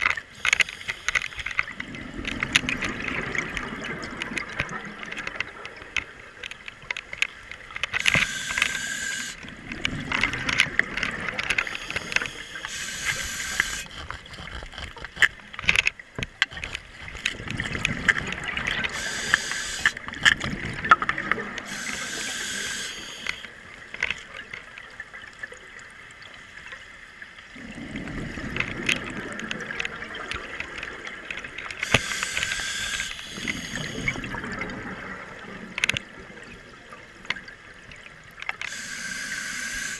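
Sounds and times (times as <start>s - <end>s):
hissing regulator inhalations: 0.4s - 1.6s, 8.0s - 9.4s, 11.4s - 15.0s, 18.9s - 20.0s, 21.6s - 23.5s, 31.8s - 34.2s, 38.7s - 39.9s
sharp clicks: 10.1s - 20.5s.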